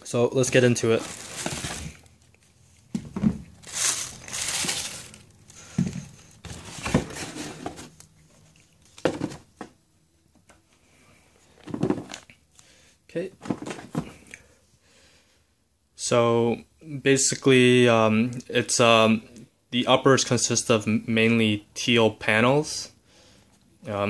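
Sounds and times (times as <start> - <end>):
tissue paper rustling: 0.8 - 2.1, 3.6 - 5.7.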